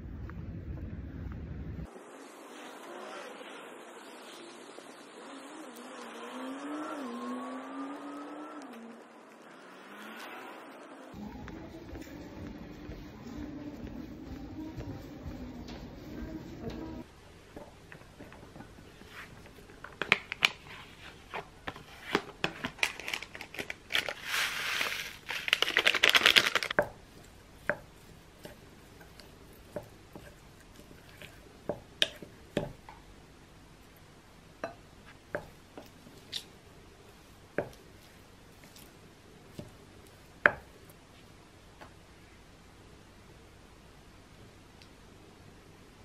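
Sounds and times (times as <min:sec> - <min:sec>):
wooden spoon mixing rice: 0:11.2 - 0:33.2, 0:35.0 - 0:42.0
paper sachet crinkling: 0:22.7 - 0:26.8.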